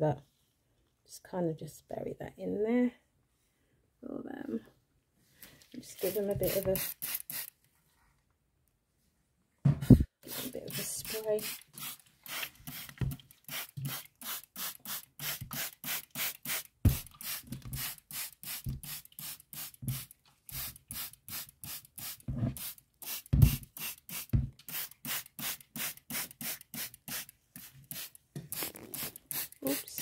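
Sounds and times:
spray bottle squirts: 6.0 - 7.6, 9.9 - 30.0.

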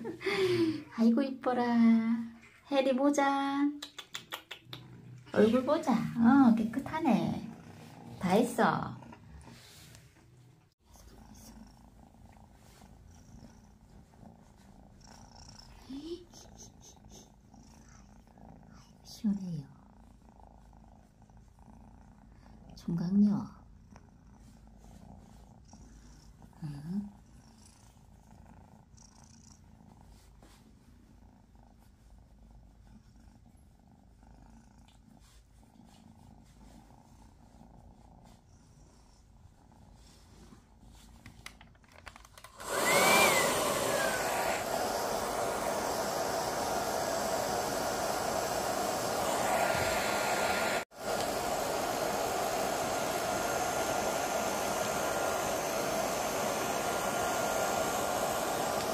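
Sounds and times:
hair dryer blowing: 42.3 - 58.9.

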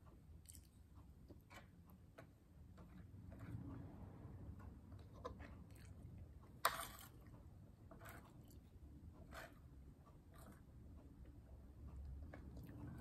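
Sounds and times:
close-up chewing: 10.4 - 13.0.

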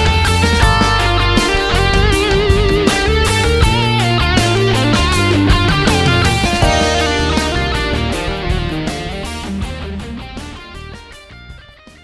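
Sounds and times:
backing track: 0.0 - 11.2
electric guitar lead: 0.0 - 11.9.

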